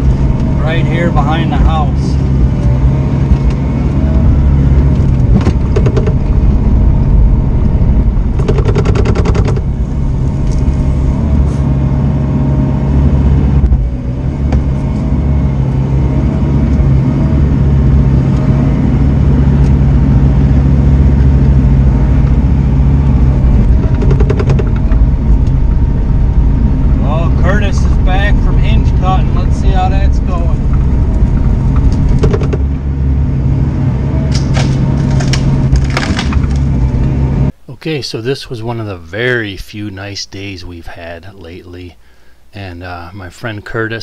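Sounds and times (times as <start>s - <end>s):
diesel engine running: 0.0s - 37.6s
hydraulic whine wavering in pitch: 0.0s - 37.6s
rapid clicking bursts: 8.4s - 9.7s.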